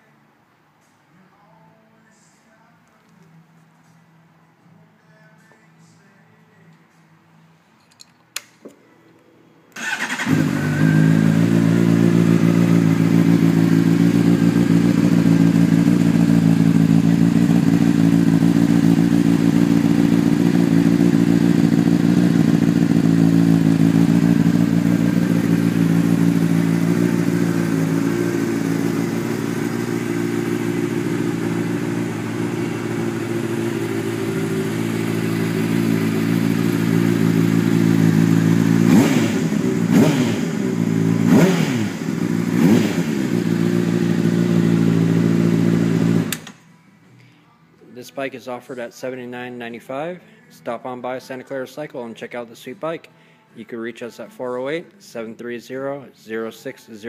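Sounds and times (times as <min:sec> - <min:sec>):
motorcycle engine idling: 0:09.8 - 0:46.4
motorcycle engine starting: 0:09.8 - 0:46.6.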